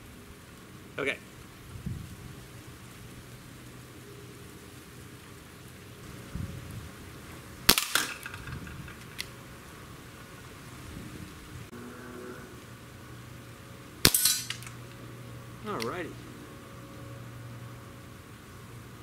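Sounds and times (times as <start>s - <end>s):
air pistol shot crack: 7.7s - 8.6s, 14.0s - 14.7s.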